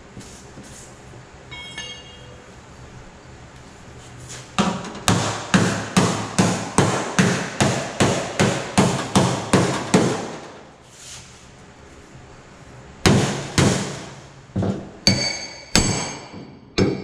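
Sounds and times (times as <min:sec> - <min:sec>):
hammer striking sheet metal: 0:04.6 - 0:10.6, 0:13.1 - 0:14.2, 0:15.1 - 0:17.0.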